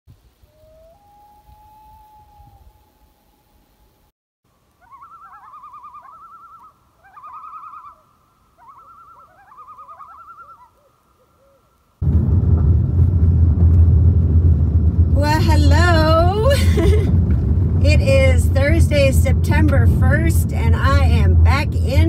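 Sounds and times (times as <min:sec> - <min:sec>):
loon tremolo calls: 0:04.7 - 0:11.8
vehicle driving on gravel road: 0:12.0 - 0:22.0.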